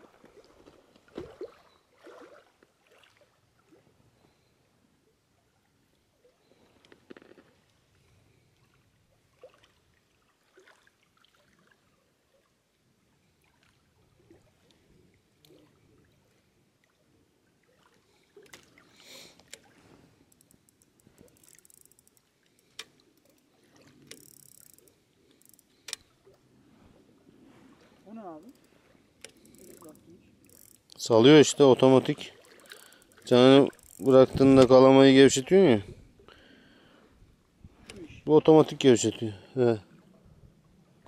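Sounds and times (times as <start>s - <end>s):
fine ticks: 19.3s - 26.1s, 28.4s - 31.0s, 32.4s - 34.7s
handling clicks and rustles: 20.3s - 26.1s.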